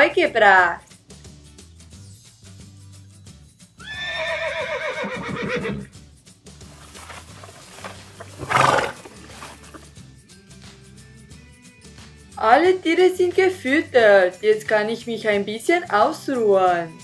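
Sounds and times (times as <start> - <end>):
background music: 0.0 - 17.0
horse neighing: 3.8 - 5.9, 7.0 - 9.8.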